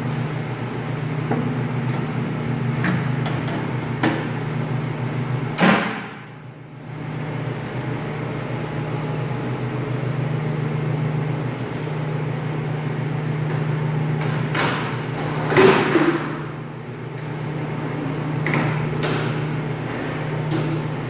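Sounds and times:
low machinery hum: 0:00.0 - 0:21.0.

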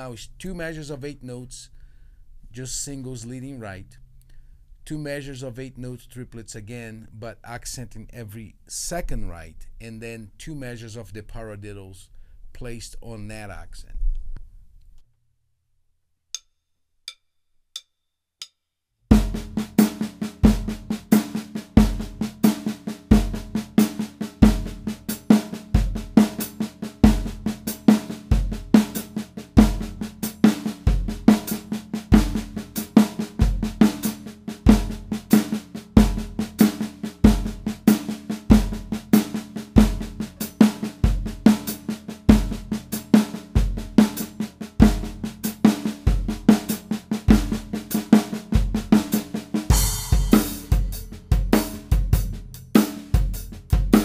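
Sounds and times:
snare drum strokes: 0:19.2 - 0:52.1.

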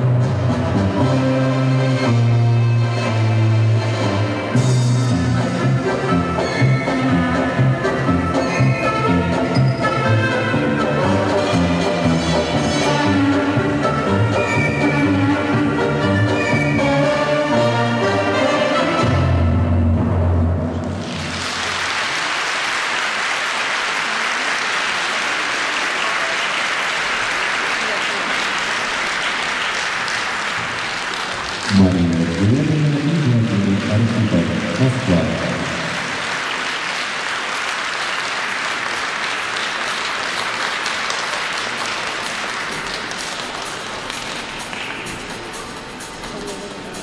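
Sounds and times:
audience applauding: 0:20.8 - 0:45.5.

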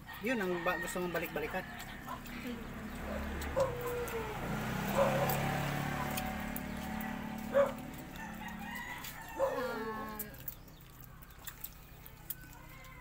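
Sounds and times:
rooster crowing: 0:00.0 - 0:02.3, 0:06.7 - 0:10.2, 0:12.4 - 0:13.0.

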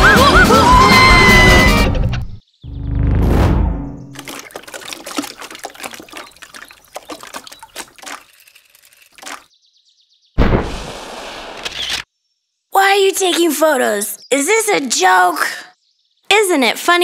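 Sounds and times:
cartoon liquid splattering: 0:04.2 - 0:09.5.

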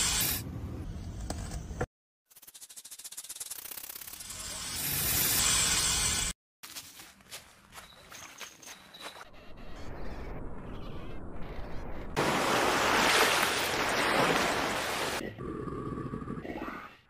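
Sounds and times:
wind: 0:06.6 - 0:16.6
surf washing on shore: 0:12.2 - 0:15.2.

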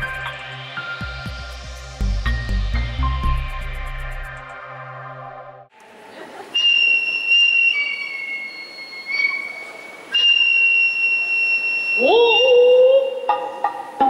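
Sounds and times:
high whistle-like music tones: 0:06.6 - 0:14.0.

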